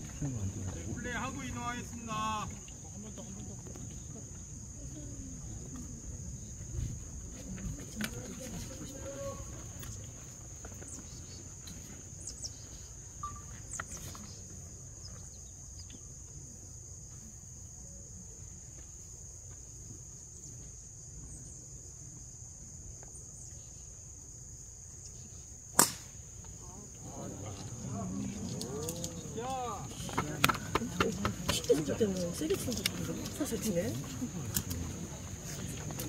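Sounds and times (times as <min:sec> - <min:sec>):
golf club striking ball: 0:25.7 - 0:26.2.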